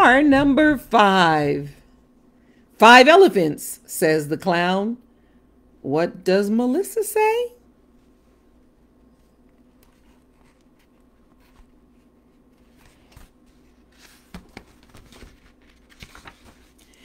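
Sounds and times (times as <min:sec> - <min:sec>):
low room hum: 0:00.0 - 0:17.0
book pages turning: 0:09.5 - 0:17.0
paper rustling: 0:09.8 - 0:17.0.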